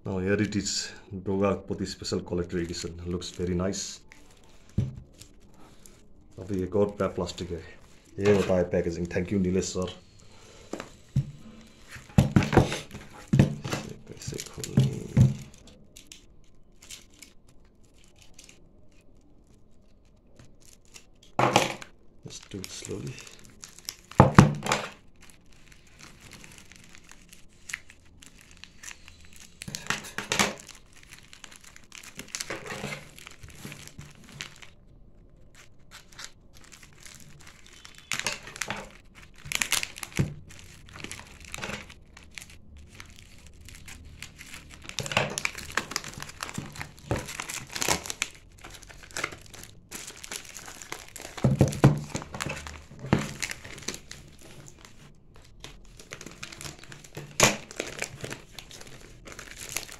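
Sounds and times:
plastic bag crinkling: 0:01.8 - 0:59.9.

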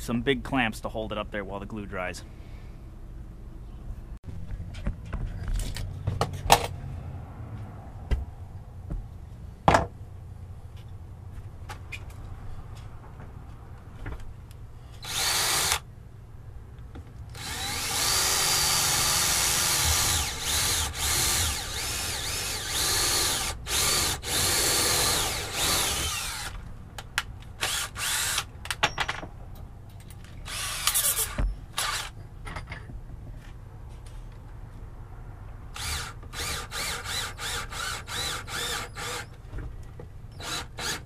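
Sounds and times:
cordless drill driving screws: 0:15.0 - 0:15.8, 0:17.3 - 0:26.6, 0:27.6 - 0:28.5, 0:30.5 - 0:32.1, 0:35.8 - 0:39.4, 0:40.4 - 0:41.0.

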